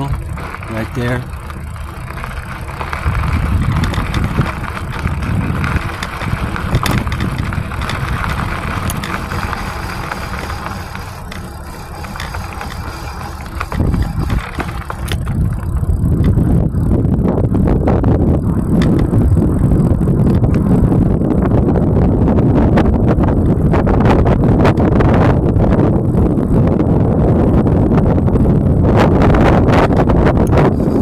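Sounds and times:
small knocks and rattles: 0:00.0 - 0:16.4
bike rolling over gravel: 0:00.0 - 0:21.3, 0:30.5 - 0:31.0.

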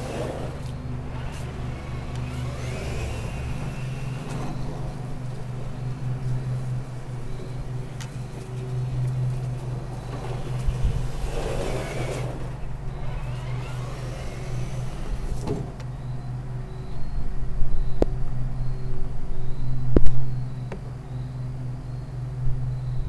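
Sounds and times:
toy car motor whining: 0:00.0 - 0:15.9.

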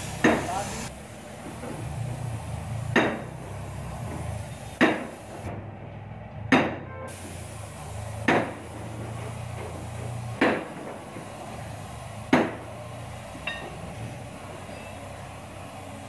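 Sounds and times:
loud sharp knocks: 0:03.0 - 0:03.3, 0:04.8 - 0:05.1, 0:06.5 - 0:06.9, 0:08.3 - 0:08.6, 0:10.4 - 0:11.0, 0:12.3 - 0:12.6.

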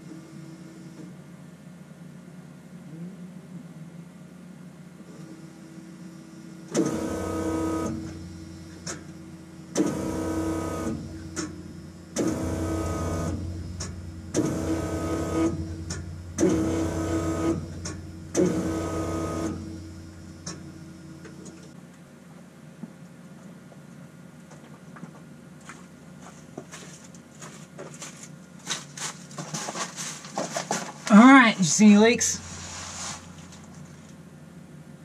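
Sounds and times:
electric fuel pump whining: 0:05.1 - 0:21.8.

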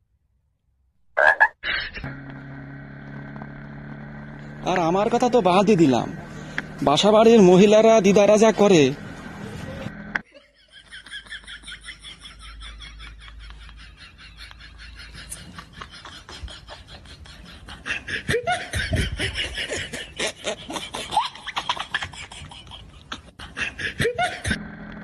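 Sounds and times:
people laughing: 0:07.4 - 0:24.6.

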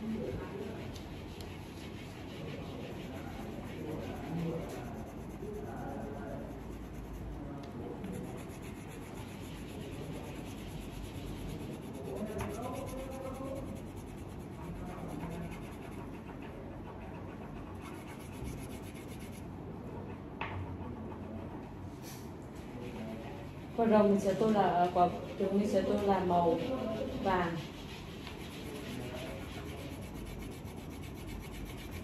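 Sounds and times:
crayon scratching on paper: 0:00.0 - 0:19.4, 0:24.2 - 0:32.0.

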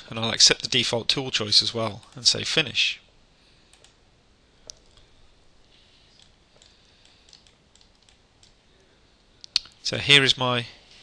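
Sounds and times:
computer mouse clicks: 0:03.7 - 0:04.0, 0:04.6 - 0:05.1, 0:06.2 - 0:08.6.

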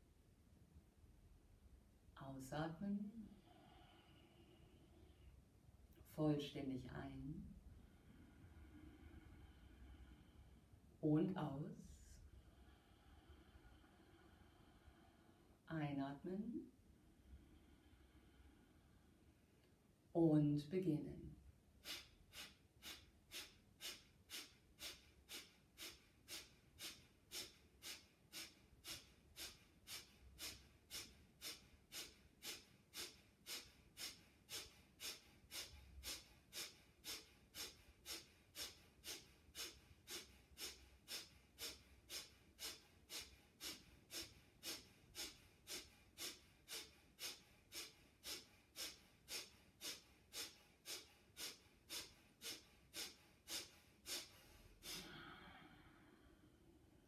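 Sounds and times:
woman's sharp nasal exhalations: 0:21.8 - 0:56.4.

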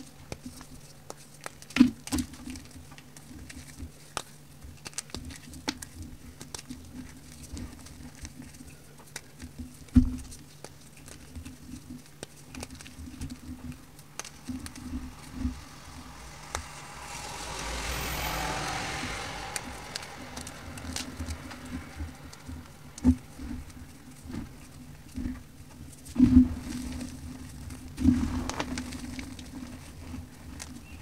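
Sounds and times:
faint low hum: 0:00.0 - 0:31.0
powder crunching between fingers: 0:00.3 - 0:25.1.

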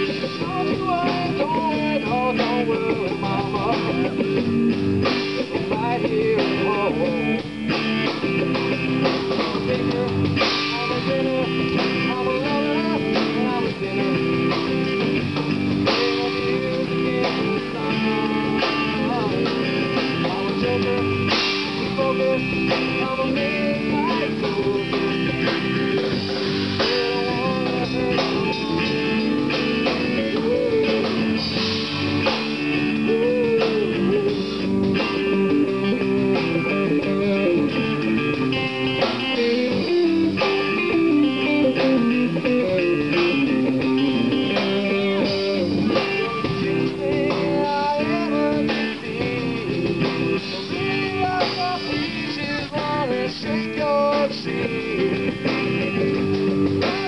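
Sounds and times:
drum kit: 0:00.0 - 0:57.0
electric bass: 0:00.0 - 0:57.0
electric guitars: 0:00.0 - 0:57.0.

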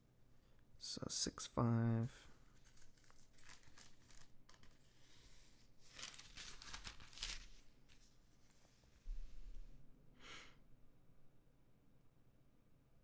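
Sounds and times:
faint soft rustles: 0:02.4 - 0:09.8.

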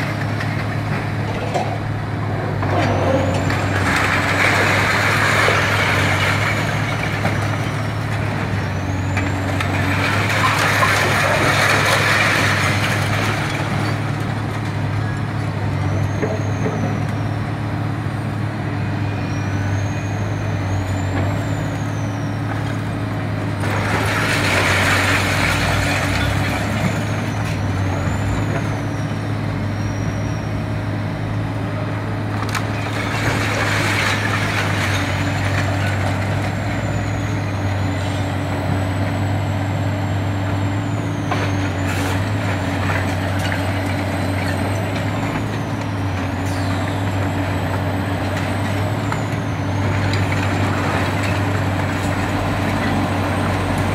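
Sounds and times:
falling rubble: 0:00.0 - 0:17.3, 0:20.9 - 0:29.0, 0:32.3 - 0:53.9
excavator engine hum: 0:00.0 - 0:53.9
concrete cracking: 0:09.2 - 0:14.2.

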